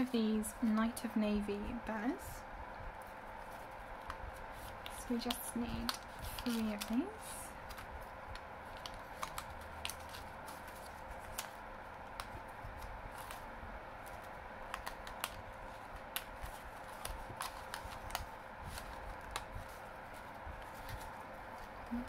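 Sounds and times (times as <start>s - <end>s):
faint steady hum: 0.0s - 22.0s
paper clicks taps and rustles: 3.5s - 7.0s, 7.6s - 13.4s, 14.0s - 22.0s.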